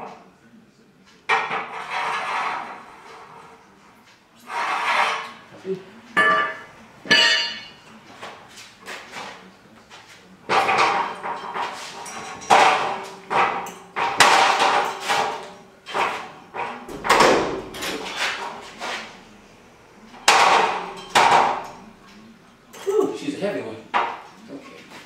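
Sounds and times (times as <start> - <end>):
metallic clanks and knocks: 10.5 - 22.8.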